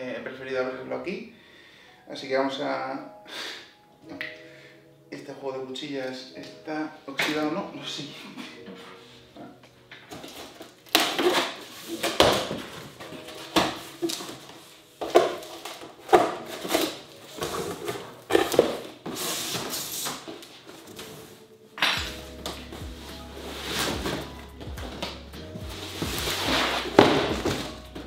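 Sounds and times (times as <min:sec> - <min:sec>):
cardboard box ripping and rustling: 0:25.8 - 0:27.8.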